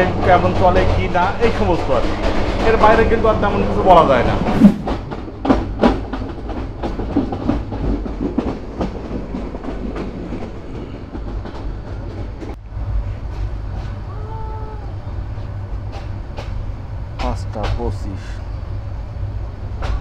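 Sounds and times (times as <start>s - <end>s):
wheels clicking over rail joints: 0.0s - 12.6s, 15.5s - 18.3s
train rumbling: 0.0s - 20.0s.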